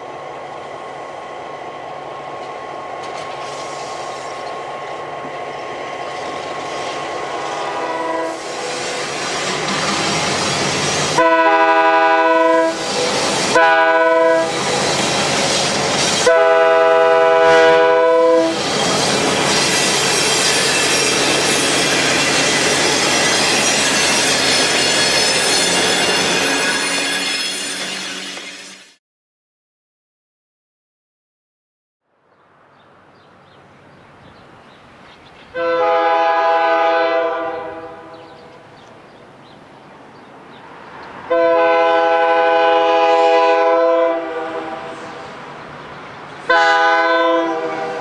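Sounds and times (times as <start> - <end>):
train wheels rumbling: 0.0 - 29.0
diesel locomotive horn blasts: 7.6 - 9.0, 11.1 - 14.7, 16.2 - 18.7, 35.6 - 38.6, 41.3 - 45.2, 46.5 - 48.0.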